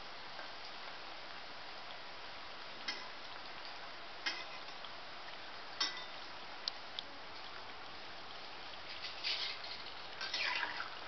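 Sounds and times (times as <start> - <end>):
food deep-frying in hot oil: 0.0 - 11.0
metal spatula clinking on pan: 5.8 - 6.1.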